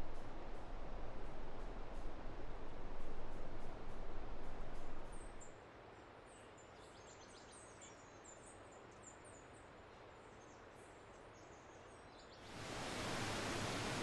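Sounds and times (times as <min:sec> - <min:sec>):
waterfall rushing: 0:12.5 - 0:14.0.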